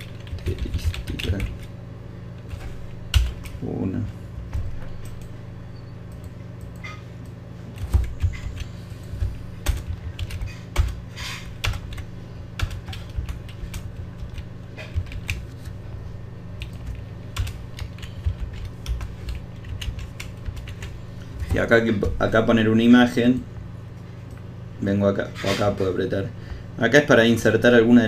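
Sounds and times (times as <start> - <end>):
keyboard typing: 0.0 - 1.7, 2.4 - 3.6, 7.8 - 15.8, 16.5 - 22.2
low hum: 0.0 - 28.0.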